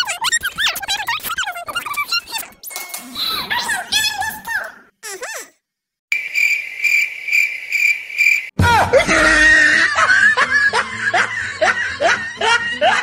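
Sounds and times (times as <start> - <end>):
cricket chirping: 6.1 - 8.6.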